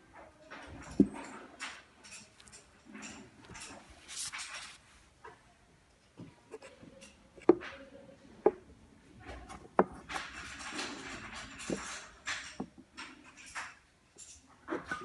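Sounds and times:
rustling handling noise: 0:00.5 - 0:05.4.

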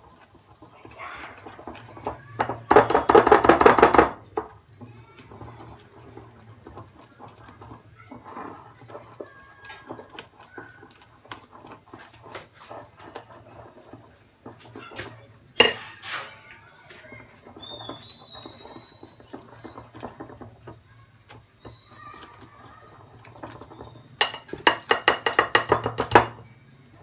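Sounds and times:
whisk clicking against bowl: 0:17.2 - 0:26.4.

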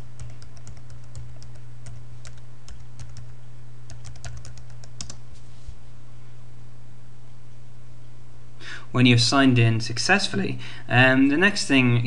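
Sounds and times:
keyboard typing: 0:00.0 - 0:05.2
steady low hum: 0:00.0 - 0:12.0.

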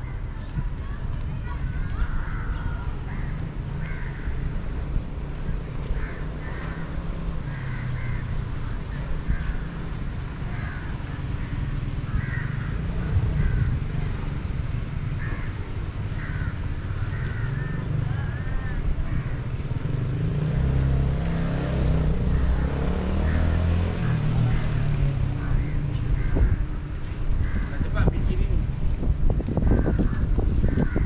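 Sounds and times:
birds calling: 0:29.4 - 0:31.0.

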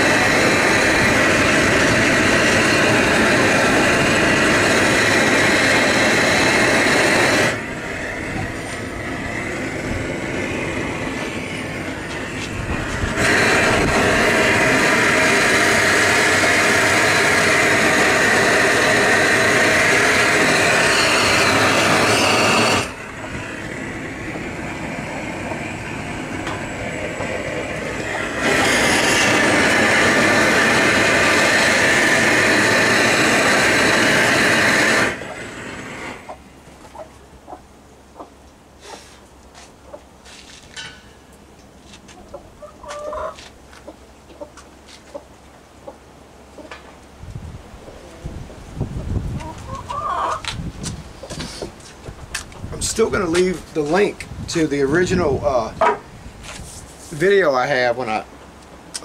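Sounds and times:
propane torch flame rushing: 0:00.0 - 0:36.4, 0:50.4 - 0:58.2.

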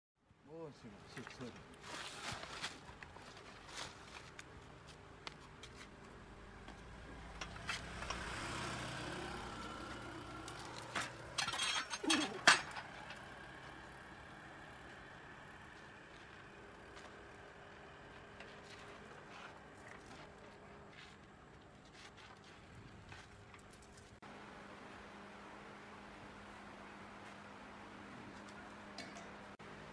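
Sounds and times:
knocks and metallic clinks: 0:10.5 - 0:13.3.

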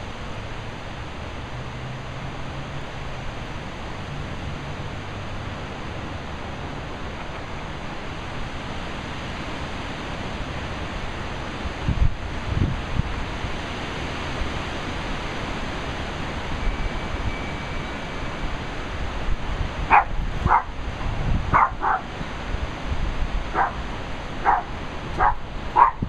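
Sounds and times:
steady background hiss: 0:00.0 - 0:26.0
dog barking: 0:19.9 - 0:20.7, 0:21.5 - 0:22.1, 0:23.5 - 0:23.8, 0:24.4 - 0:26.0.

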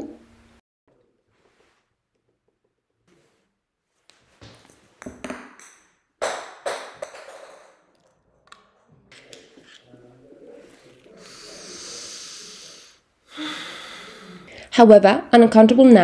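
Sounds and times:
soft scattered noises: 0:08.2 - 0:12.6
hiss: 0:11.2 - 0:14.4.

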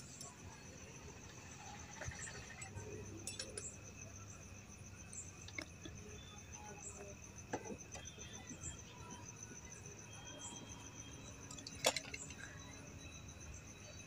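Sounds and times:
faint metallic clicks and clinks: 0:00.0 - 0:04.4, 0:05.0 - 0:14.0.

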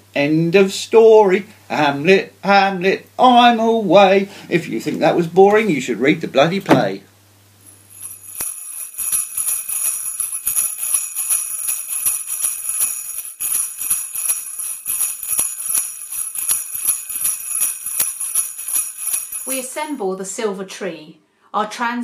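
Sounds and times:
small sleigh bells rattling: 0:07.7 - 0:20.0.

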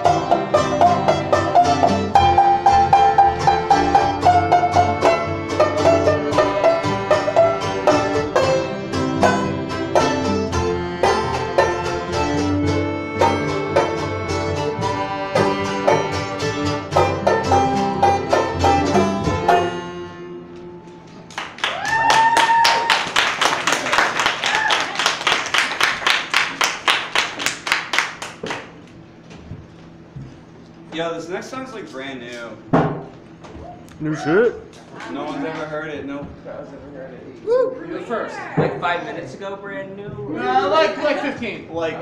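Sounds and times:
banjo picking quick notes: 0:00.0 - 0:20.4
accordion holding tones: 0:00.0 - 0:20.8.

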